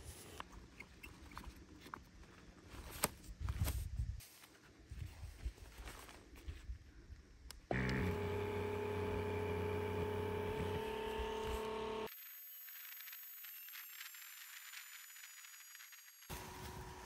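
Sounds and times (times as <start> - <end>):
electric air pump humming: 7.7 - 12.1.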